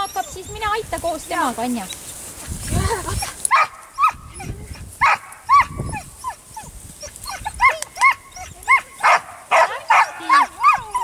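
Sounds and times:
dog yipping and barking: 0:03.2 - 0:11.0.

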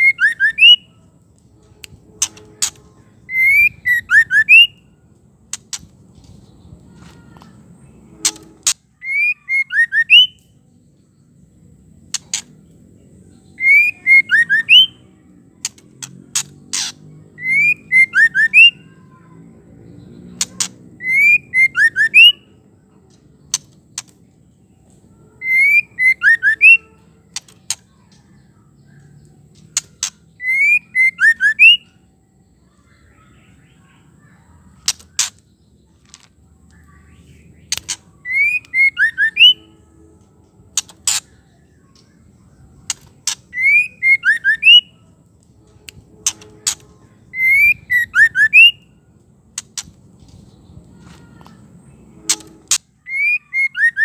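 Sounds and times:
bird whistled song: 0:00.0 - 0:01.0, 0:01.9 - 0:05.0, 0:08.1 - 0:11.1, 0:13.3 - 0:15.8, 0:16.4 - 0:19.0, 0:20.0 - 0:22.6, 0:25.2 - 0:35.9, 0:36.7 - 0:39.9, 0:40.7 - 0:50.0, 0:51.9 - 0:54.0
sharp clicks: 0:15.6 - 0:17.6, 0:23.1 - 0:24.2, 0:34.8 - 0:35.4, 0:37.7 - 0:38.8, 0:45.4 - 0:46.9.

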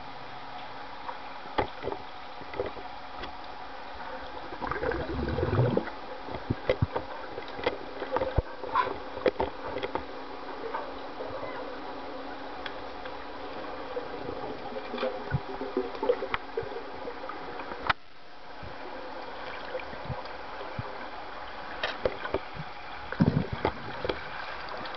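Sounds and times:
muffled water rushing: 0:00.9 - 0:24.9.

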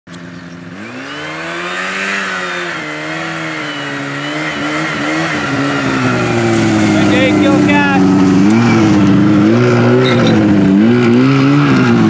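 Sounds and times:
snowmobile engine approaching: 0:00.1 - 0:12.0.

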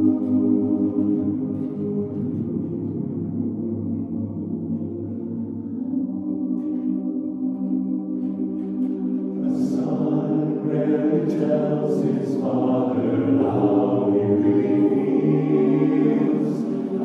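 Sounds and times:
men's chorus singing a cappella: 0:09.4 - 0:17.0.

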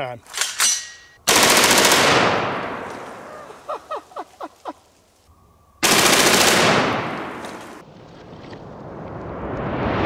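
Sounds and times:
rifle full-auto fire: 0:01.3 - 0:02.9, 0:05.8 - 0:07.6.

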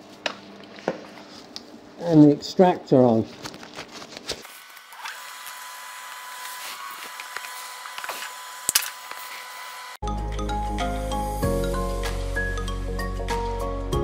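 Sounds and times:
background music: 0:10.0 - 0:14.0.

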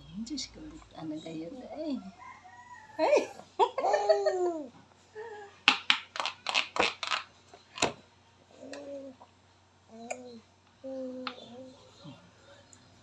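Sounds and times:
rooster crowing: 0:02.0 - 0:03.4.

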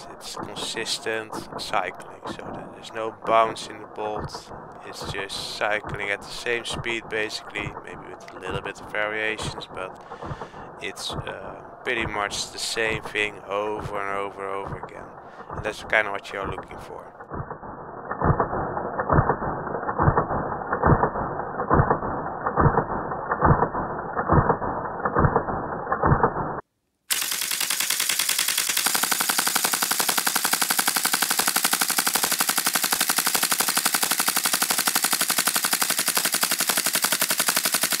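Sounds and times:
rapid automatic gunfire rattle: 0:00.0 - 0:16.0, 0:27.1 - 0:38.0
muffled slowed-down gunshots: 0:00.0 - 0:26.3, 0:27.1 - 0:38.0.

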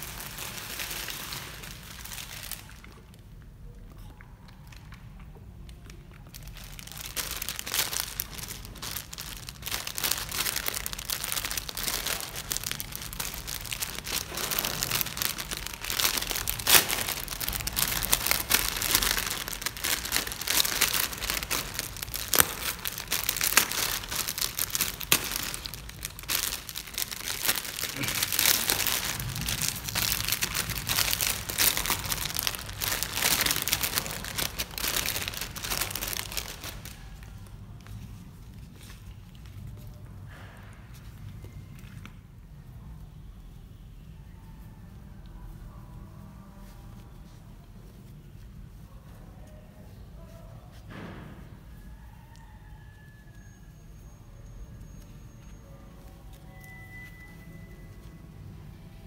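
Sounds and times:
plastic bag crinkling: 0:00.0 - 0:03.3, 0:05.9 - 0:37.6.

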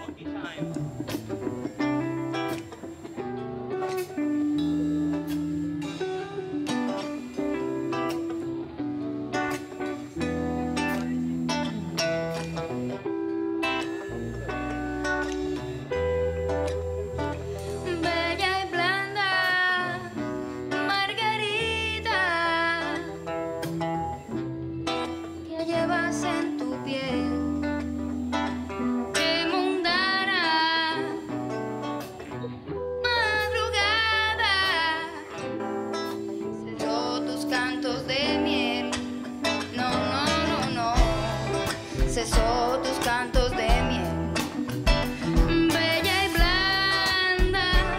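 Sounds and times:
acoustic guitar and band: 0:00.0 - 0:47.9
woman singing: 0:17.7 - 0:23.1, 0:25.4 - 0:28.1, 0:29.1 - 0:31.4, 0:33.0 - 0:35.5, 0:36.6 - 0:47.9
low bass notes: 0:39.7 - 0:47.9.

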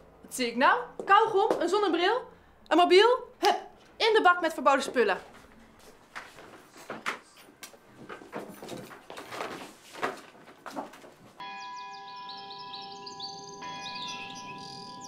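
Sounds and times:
shuffling and knocks: 0:05.2 - 0:11.4
held chord background music: 0:11.4 - 0:15.0
high chirping notes: 0:11.4 - 0:15.0.

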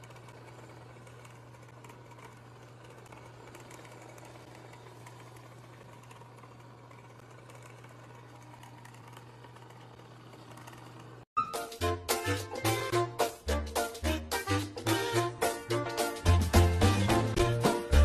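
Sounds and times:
small electric appliance humming: 0:00.0 - 0:11.3.

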